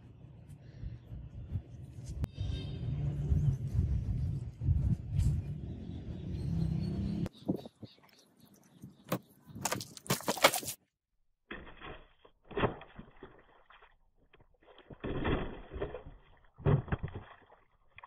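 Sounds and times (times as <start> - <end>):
water splashing on concrete: 14.9 - 18.0.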